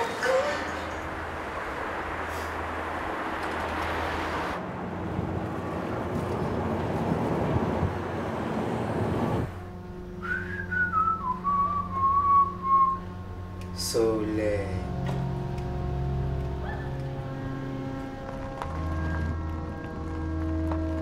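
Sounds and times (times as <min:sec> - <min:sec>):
road and wind noise in car: 0:00.0 - 0:10.0
whistled tune: 0:10.2 - 0:13.1.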